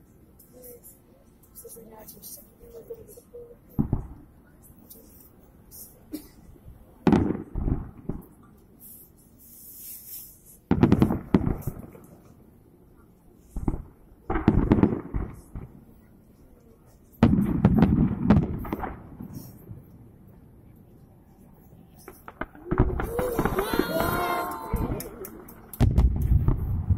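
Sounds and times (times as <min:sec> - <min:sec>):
fireworks bangs and crackle: 0:03.1 - 0:06.0, 0:06.9 - 0:12.5, 0:13.4 - 0:20.2, 0:21.3 - 0:26.9.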